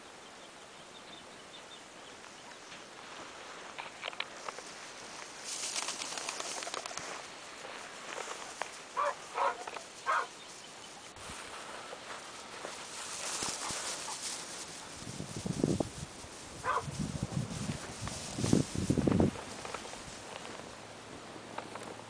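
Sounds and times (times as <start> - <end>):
dry grass rustling underfoot: 2.2 - 22.0
dog barking: 9.0 - 10.3, 16.6 - 16.9.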